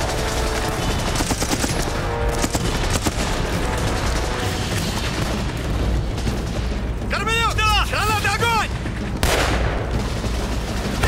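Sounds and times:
machine-gun and rifle fire: 0:00.0 - 0:06.6, 0:09.2 - 0:11.0
film score music: 0:00.0 - 0:11.0.

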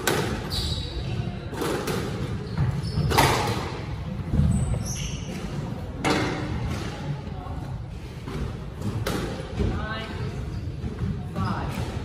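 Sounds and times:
shoes squeaking on wooden floor: 0:00.4 - 0:01.2, 0:02.3 - 0:03.5.

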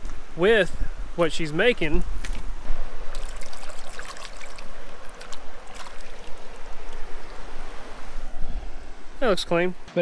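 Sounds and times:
creek running over rocks: 0:01.5 - 0:08.3
hand rinsing splashes: 0:03.1 - 0:07.5.

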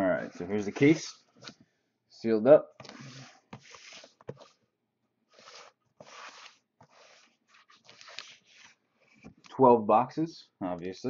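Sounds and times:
cardboard scraping on table: 0:02.8 - 0:04.6, 0:05.3 - 0:09.4.

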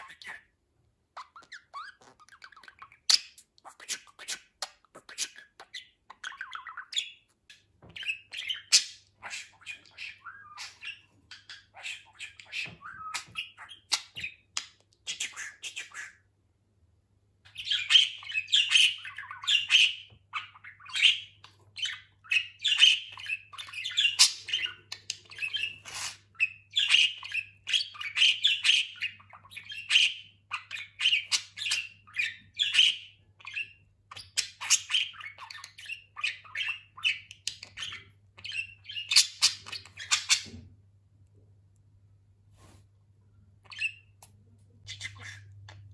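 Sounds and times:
budgerigar chattering and warbling: 0:00.0 - 0:00.5, 0:08.0 - 0:16.3, 0:44.8 - 0:45.9.

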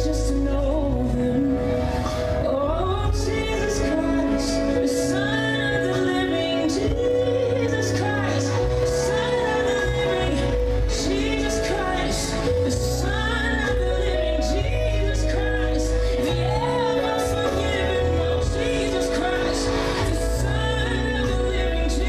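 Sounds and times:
gospel singing: 0:00.0 - 0:22.0
held chords: 0:00.0 - 0:22.0
steady bass: 0:00.0 - 0:22.0.

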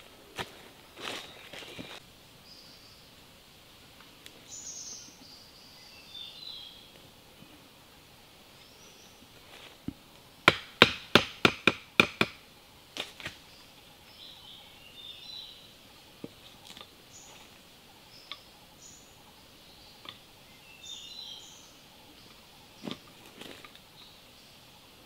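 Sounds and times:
faint bird chirps: 0:00.9 - 0:03.3, 0:04.4 - 0:07.8, 0:13.4 - 0:25.0
wooden knocks: 0:10.5 - 0:12.4.

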